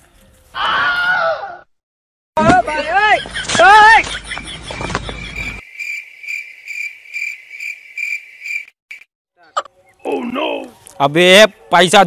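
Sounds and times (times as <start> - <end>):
cricket chirping: 4.2 - 9.1.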